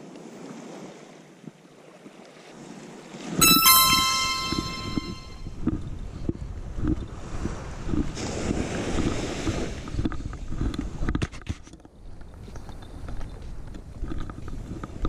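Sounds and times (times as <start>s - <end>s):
small waves washing up sand: 0.0s - 3.2s, 7.2s - 11.1s.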